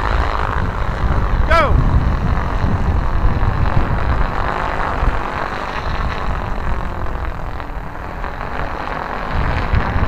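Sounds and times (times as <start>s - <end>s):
stunt kites roaring through air: 0.0s - 10.0s
wind rumble on microphone: 0.0s - 10.0s.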